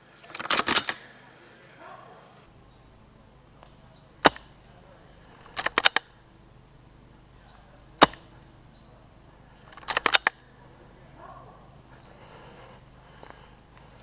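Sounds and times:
airsoft gun shots: 4.2s - 4.6s, 8.0s - 8.3s.

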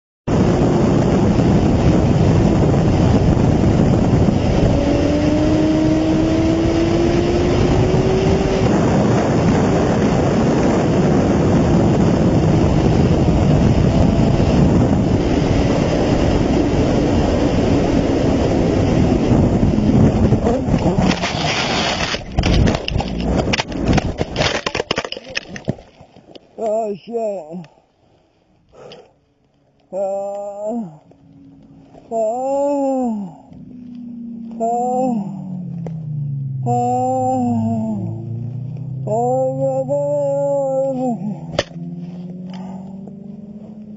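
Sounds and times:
wind and road noise: 0.3s - 43.9s
crash knocks and scrapes: 20.9s - 26.2s
faint motorcycle engine: 28.2s - 43.9s.

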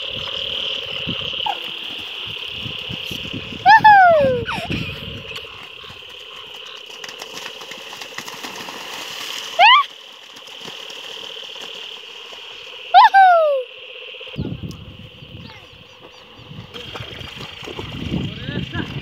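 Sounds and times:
frogs croaking chorus: 0.0s - 19.0s
person whooping herding calls: 3.6s - 4.6s, 9.6s - 9.9s, 13.0s - 13.7s.

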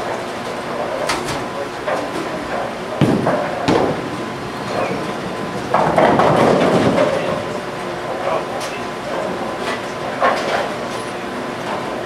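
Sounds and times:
bowling balls rumbling: 0.7s - 9.6s
bowling pins clattering: 1.4s - 8.4s
sharp knocks: 3.0s - 7.2s.

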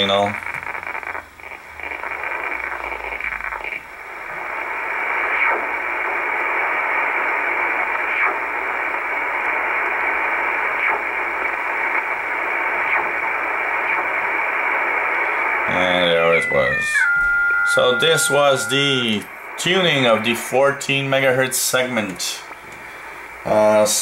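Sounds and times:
radio band hiss: 0.0s - 24.0s
faint short radio chirps: 15.7s - 19.3s.

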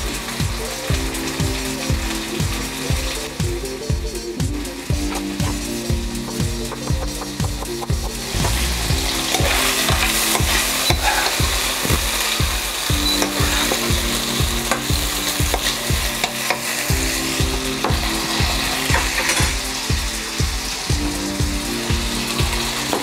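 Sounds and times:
meat sizzling in a wok: 0.0s - 23.0s.

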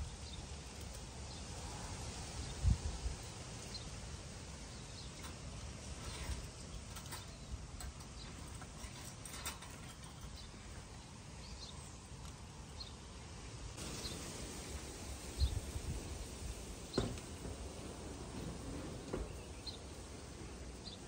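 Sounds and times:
faint outdoor background noise: 0.0s - 21.0s
wire bird cage clicks and rattles: 5.2s - 10.6s.

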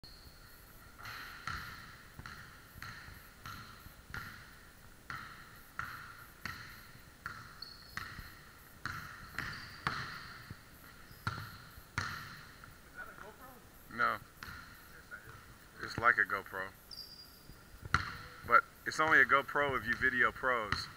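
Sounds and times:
basketball bouncing on wooden floor: 1.0s - 4.5s, 5.1s - 12.7s, 14.4s - 16.1s, 17.8s - 18.5s.

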